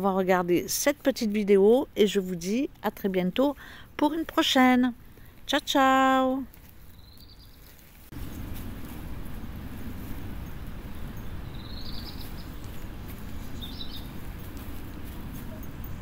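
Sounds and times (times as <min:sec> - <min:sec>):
bird chirping: 0:06.9 - 0:08.5, 0:10.5 - 0:14.2
steady rumbling: 0:07.9 - 0:16.0.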